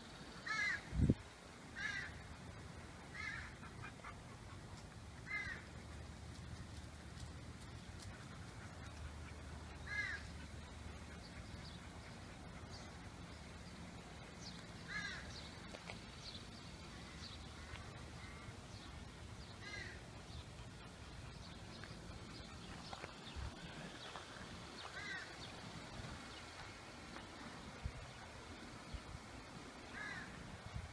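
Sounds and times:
crow cawing: 0:00.4 - 0:00.9, 0:01.8 - 0:02.2, 0:03.1 - 0:03.5, 0:05.3 - 0:05.6, 0:09.9 - 0:10.3, 0:14.9 - 0:15.3, 0:19.6 - 0:20.0, 0:25.0 - 0:25.3, 0:30.0 - 0:30.3.

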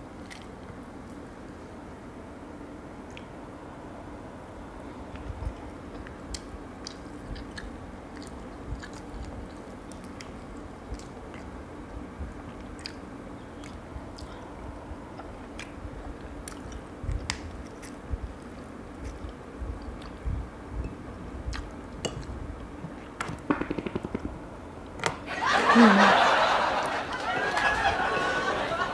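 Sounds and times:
chewing and mouth sounds: 0:00.2 - 0:00.6, 0:05.2 - 0:20.4, 0:21.4 - 0:23.1
low hum: 0:19.0 - 0:28.9
shell cracking and clicking: 0:23.2 - 0:24.4.

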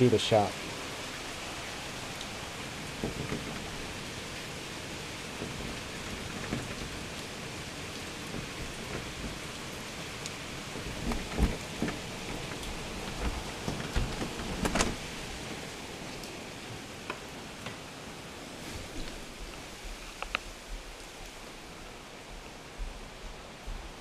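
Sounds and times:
rain falling: 0:00.0 - 0:24.0
knocks and thumps: 0:03.0 - 0:03.9, 0:10.8 - 0:15.0.

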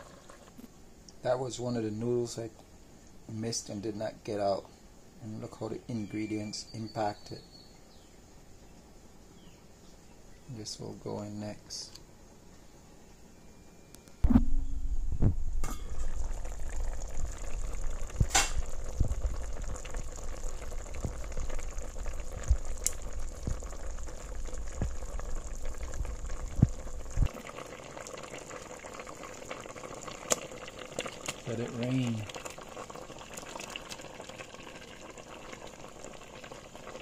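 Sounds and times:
soup boiling and bubbling: 0:00.0 - 0:00.7, 0:15.6 - 0:37.0
simmering hiss: 0:00.0 - 0:14.0, 0:14.6 - 0:37.0
low rumble: 0:14.2 - 0:19.8.

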